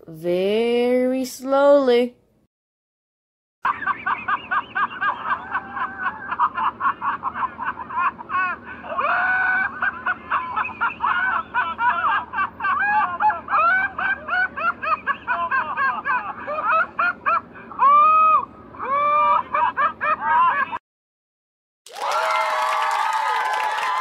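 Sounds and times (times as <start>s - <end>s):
high-pitched cartoonish laughing: 3.7s - 20.8s.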